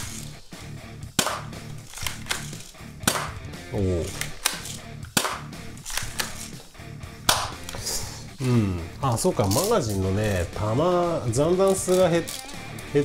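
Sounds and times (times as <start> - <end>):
airsoft pistol shots: 1.2 - 3.4, 4.3 - 6.3, 7.3 - 7.6
pistol cocking clicks: 1.2 - 3.4, 4.1 - 6.6, 11.7 - 12.9.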